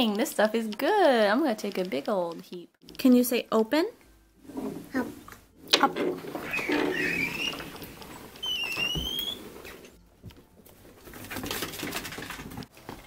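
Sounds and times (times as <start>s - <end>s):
sliding glass door rattling: 5.7s - 9.9s
high rising squeaks: 6.1s - 10.0s.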